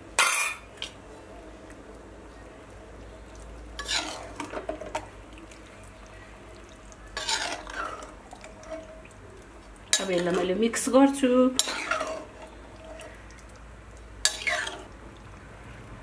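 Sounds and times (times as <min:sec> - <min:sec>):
curry sizzling: 0:00.0 - 0:16.0
metal spoon clanking and scraping: 0:03.8 - 0:04.8, 0:07.2 - 0:08.9, 0:11.6 - 0:13.0, 0:14.3 - 0:14.9.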